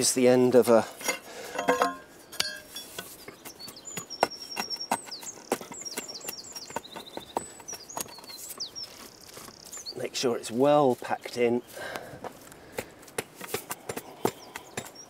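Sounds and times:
clinks against stone: 1.0s - 3.4s.

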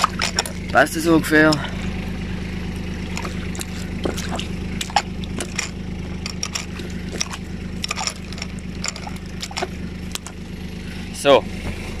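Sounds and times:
low engine hum: 0.0s - 12.0s
hand splashing water: 3.0s - 5.8s.

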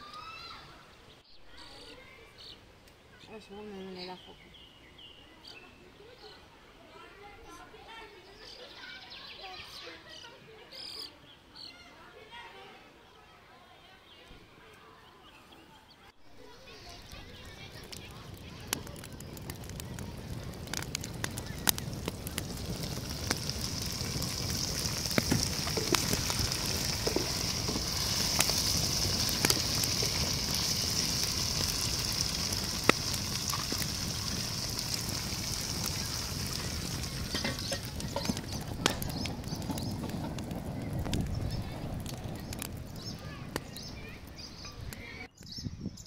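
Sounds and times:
meat sizzling in a pot: 16.6s - 41.8s.

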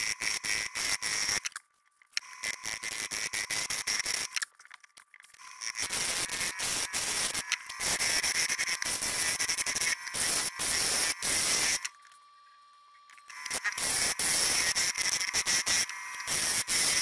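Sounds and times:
faint steady lathe whine: 5.4s - 17.0s.

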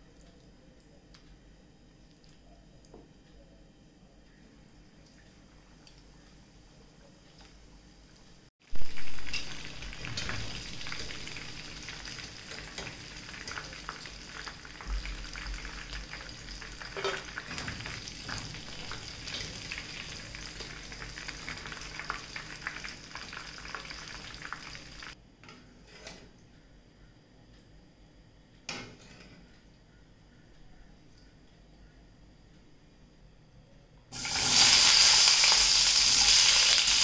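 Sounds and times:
chicken sizzling in hot oil: 8.6s - 25.2s, 34.1s - 37.0s.

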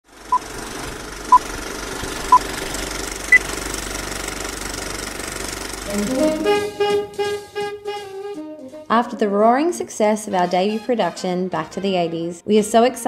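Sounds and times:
film projector clattering: 0.2s - 5.9s.

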